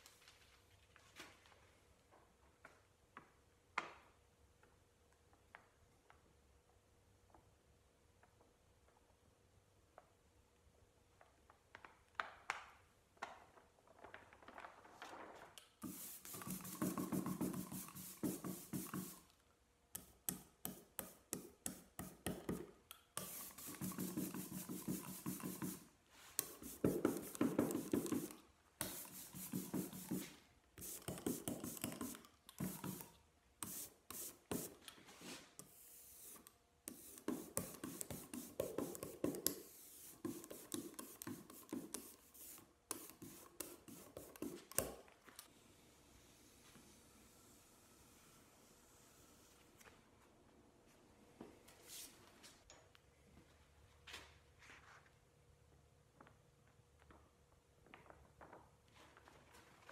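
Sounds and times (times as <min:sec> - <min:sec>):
ink roller rubbing strokes: 0:15.8 - 0:19.3, 0:23.2 - 0:44.8.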